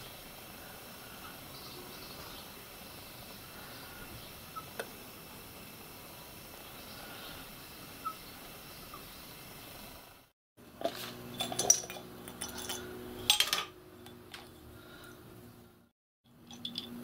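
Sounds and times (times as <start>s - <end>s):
metal tool clinking on glass jar: 11.3s - 14.7s, 16.3s - 17.0s.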